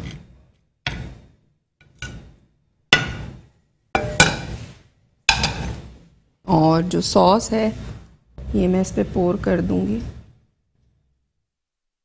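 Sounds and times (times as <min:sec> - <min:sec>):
utensil knocking on plate: 0:04.0 - 0:04.5.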